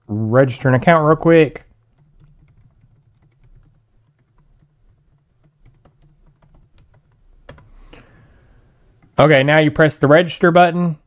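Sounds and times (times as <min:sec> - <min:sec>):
typing on a computer keyboard: 0:01.9 - 0:07.7.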